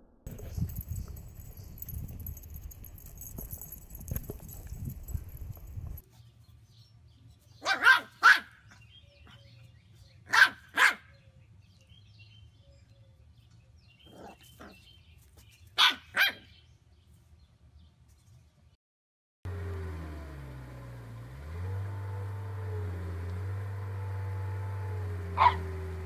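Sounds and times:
puppy barking: 7.6 - 8.8, 10.3 - 11.2, 15.8 - 16.5, 25.3 - 25.8.

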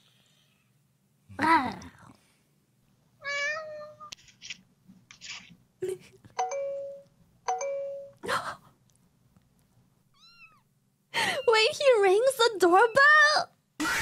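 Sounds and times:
cat meowing: 3.2 - 4.1, 10.1 - 10.7.

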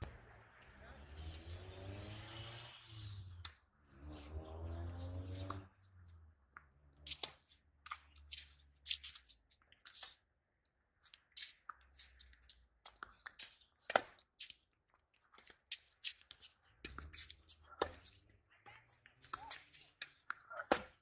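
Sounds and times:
rackets striking tennis ball: 19.3 - 21.0.

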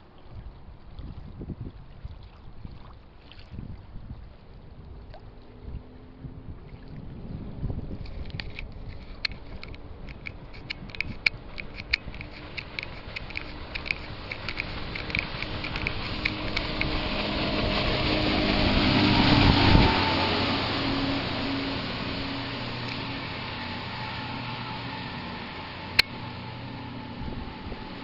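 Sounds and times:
outboard engines passing: 4.2 - 28.0
rushing water and spray: 6.6 - 28.0
sharp clicks: 8.3 - 17.1.

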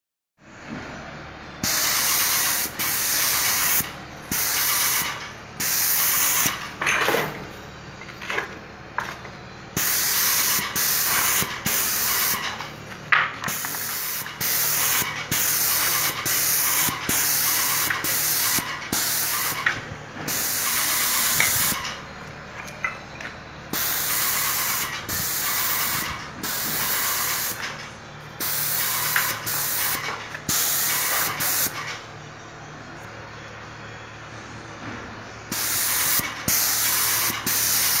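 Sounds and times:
paint sprayer hissing: 1.6 - 6.7, 9.8 - 12.6, 13.4 - 19.7, 20.3 - 21.9, 23.7 - 27.7, 28.4 - 31.9, 35.5 - 38.0.

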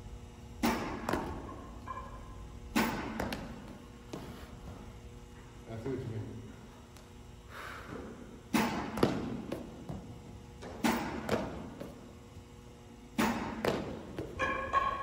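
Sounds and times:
baseballs smacking into glove: 0.6 - 1.7, 2.7 - 4.3, 8.5 - 12.1, 13.2 - 14.5.

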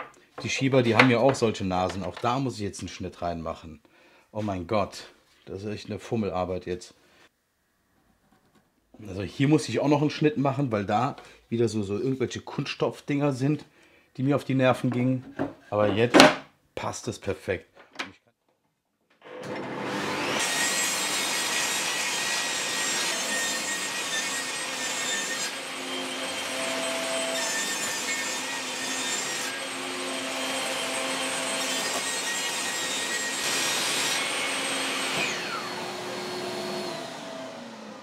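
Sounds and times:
table saw motor whining: 19.2 - 38.0
saw ripping plywood: 19.3 - 37.3
saw blade spinning down: 35.1 - 38.0.

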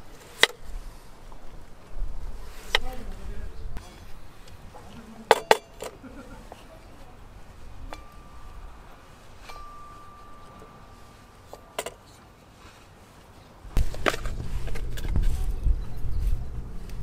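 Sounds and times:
faint steady high tone: 7.8 - 11.8
short clink: 9.4 - 12.0
low rumble: 13.7 - 17.0.

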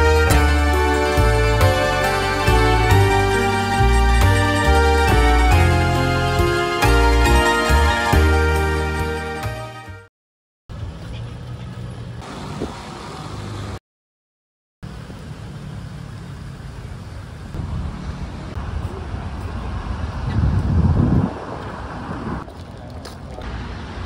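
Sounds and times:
road traffic: 0.0 - 9.4, 10.7 - 13.8, 14.8 - 24.0
background music: 0.0 - 10.1.

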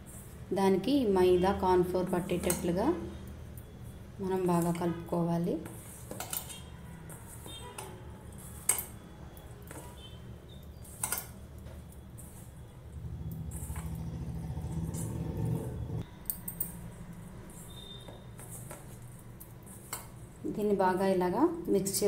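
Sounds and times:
bangles clinking on metal bowl: 8.3 - 9.0
steady low hum: 12.7 - 16.0.

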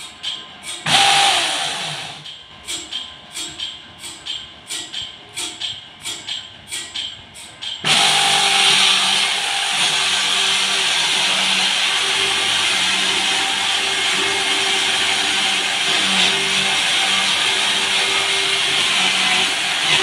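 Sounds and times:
rhythmic tapping: 0.0 - 20.0
electric chainsaw cutting log: 0.9 - 2.3, 7.8 - 20.0.

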